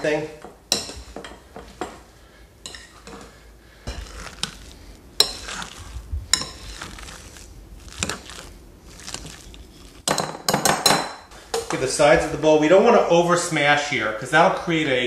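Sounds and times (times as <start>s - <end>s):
potato masher squishing potatoes: 3.8s - 10.1s.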